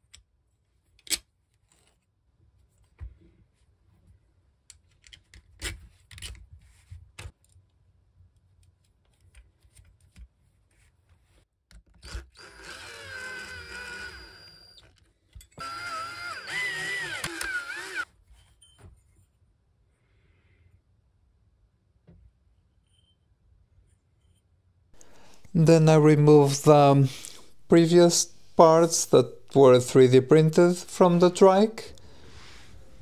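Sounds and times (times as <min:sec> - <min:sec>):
cordless drill driving screws: 0:12.0 - 0:14.9, 0:15.6 - 0:18.1.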